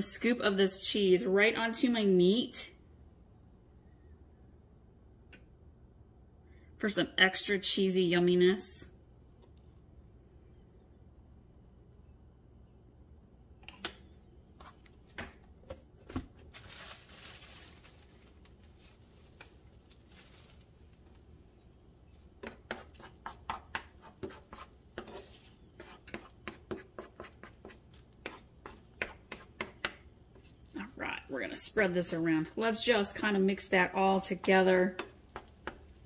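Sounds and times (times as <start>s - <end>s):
spatula scraping and tapping skillet: 22.4s - 30.7s, 32.1s - 36.0s.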